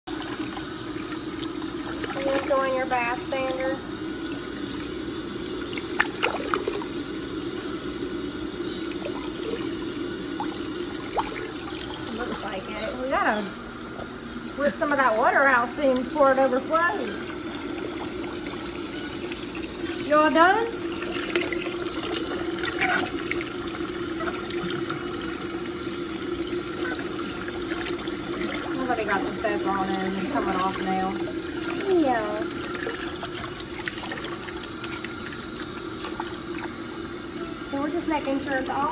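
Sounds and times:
water splashing: 0.1s - 3.8s, 5.7s - 7.0s, 8.9s - 12.9s, 26.4s - 36.9s
faucet running into bathtub: 0.1s - 8.0s, 8.6s - 13.2s, 14.0s - 38.9s
low steady hum: 0.1s - 38.9s.

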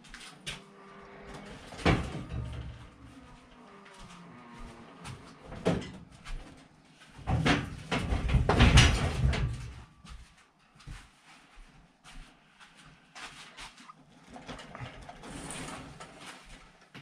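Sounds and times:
objects knocking and rattling: 5.1s - 9.9s.

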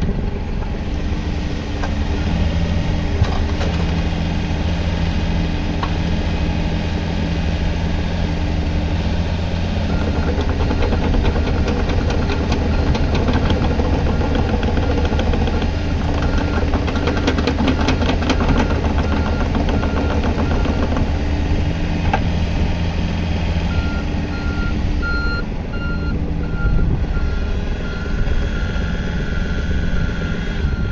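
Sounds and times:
excavator diesel engine running: 0.0s - 30.9s
rapid rattling clatter: 9.9s - 21.8s
travel alarm beeping: 23.7s - 30.9s.

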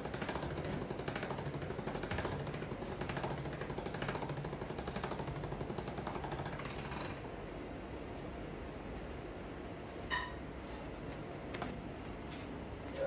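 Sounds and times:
pasta machine gears clicking rattle: 0.0s - 7.2s.

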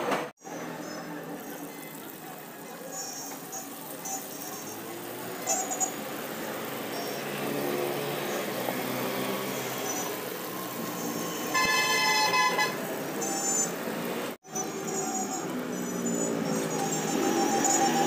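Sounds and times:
street traffic: 0.0s - 18.0s
food sizzling in hot oil: 0.4s - 18.0s
vehicle horn honking: 11.3s - 13.7s.

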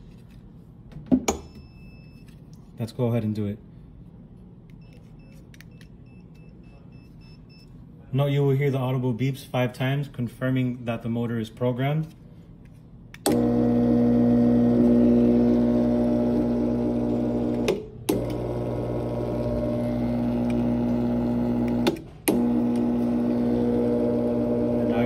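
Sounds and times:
roller shade motor humming: 13.3s - 25.0s.

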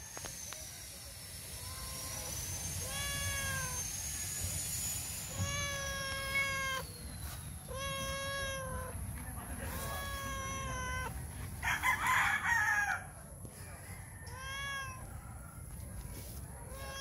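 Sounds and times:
cat meowing: 1.6s - 4.0s, 5.3s - 6.9s, 7.6s - 9.0s, 9.7s - 11.2s, 14.2s - 15.2s, 16.6s - 17.0s.

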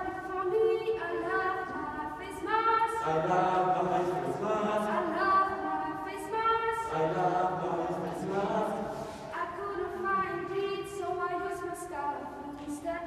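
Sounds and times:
group singing unaccompanied: 1.2s - 10.5s.

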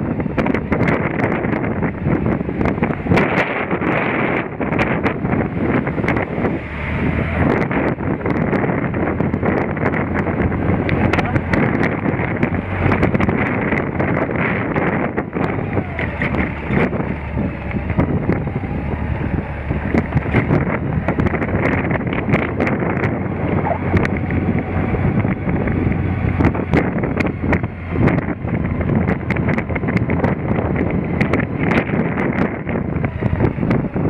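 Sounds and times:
motorcycle engine hum: 0.0s - 34.0s
wind rushing over microphone: 0.0s - 34.0s
sharp clicks and knocks: 19.9s - 23.2s.

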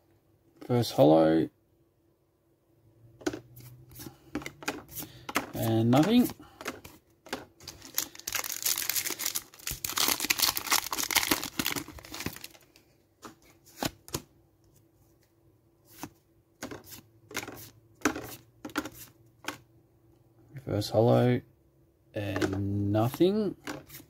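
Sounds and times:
foil wrapper tearing and crinkling: 7.6s - 12.6s.

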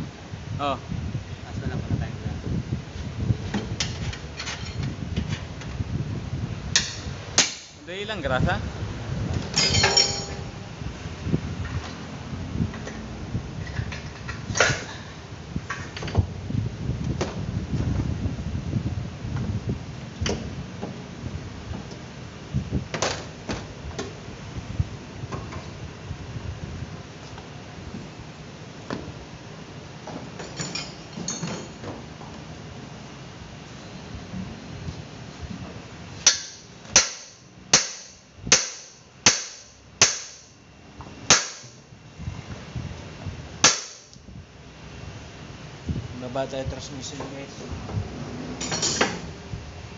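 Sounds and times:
hand tool striking metal: 6.8s - 7.8s, 36.2s - 40.5s, 41.3s - 41.8s, 43.6s - 44.1s.

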